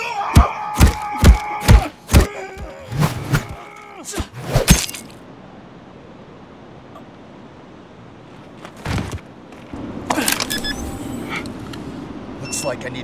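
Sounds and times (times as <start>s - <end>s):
man's battle yell: 0.0s - 4.3s.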